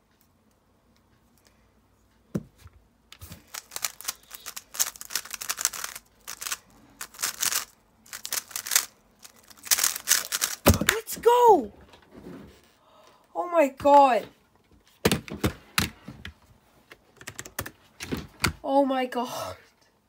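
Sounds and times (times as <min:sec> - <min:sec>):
plastic puzzle cube clicking: 0:03.2 - 0:10.7.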